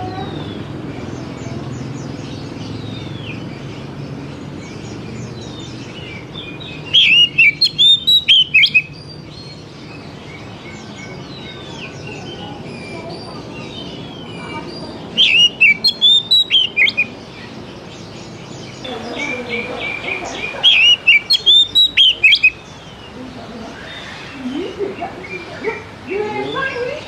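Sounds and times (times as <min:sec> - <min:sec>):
faint bird chirping: 0:00.0 - 0:27.0
bird singing whistled notes: 0:05.3 - 0:12.5, 0:15.1 - 0:17.5, 0:20.6 - 0:22.7.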